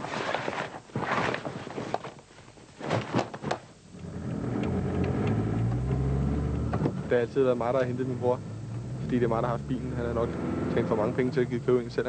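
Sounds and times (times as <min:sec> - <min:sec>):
pads rustling into a nylon bag: 0:00.0 - 0:03.8.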